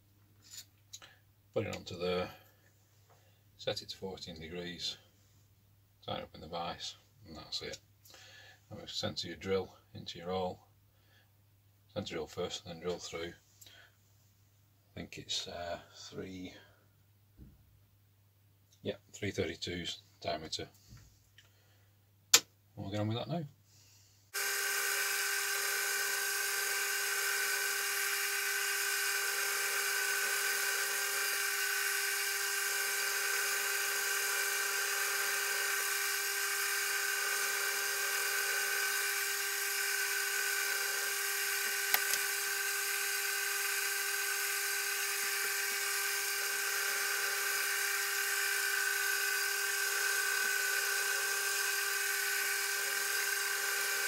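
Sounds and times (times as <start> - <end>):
sharp click: 22.3 - 22.6
mill spindle motor whining: 24.4 - 54.0.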